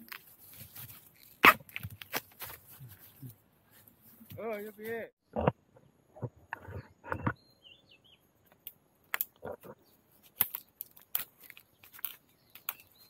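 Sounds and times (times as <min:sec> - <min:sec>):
dry twigs and leaves crackling: 0:00.0 - 0:05.0, 0:08.4 - 0:13.0
bird chirps: 0:06.7 - 0:08.3, 0:11.6 - 0:13.0.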